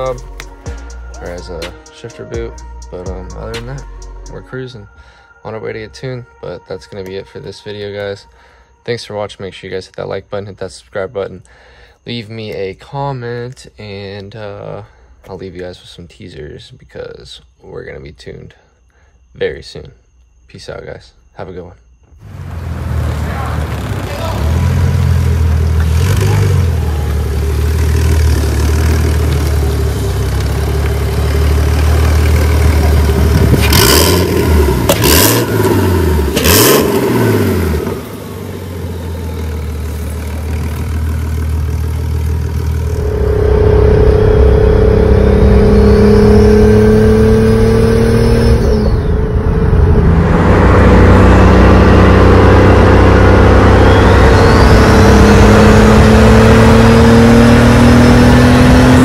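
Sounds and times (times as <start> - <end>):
car engine revving: 0.0 - 1.8, 22.2 - 59.0
sustained high tone: 0.0 - 11.3, 14.6 - 59.0.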